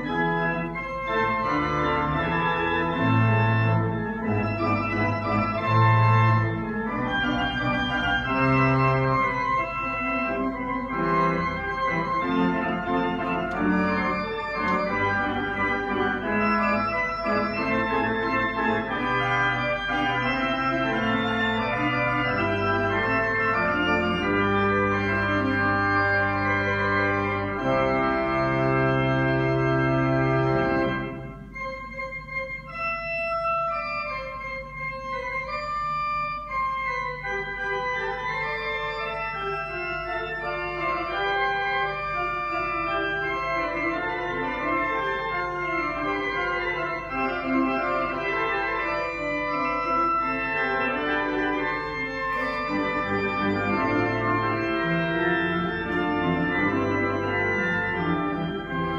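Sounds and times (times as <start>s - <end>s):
pipe organ playing: 0.0s - 58.9s.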